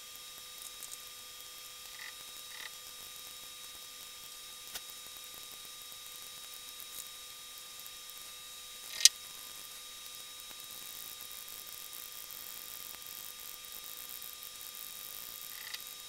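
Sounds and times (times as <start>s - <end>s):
faint electrical hum: 0.0s - 16.0s
sharp click: 8.9s - 9.2s, 15.6s - 15.8s.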